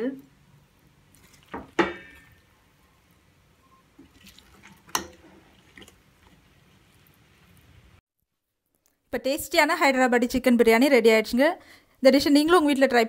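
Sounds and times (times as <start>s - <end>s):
rice moving: 0.9s - 8.0s
metal ladle knocking against pot: 1.6s - 2.4s.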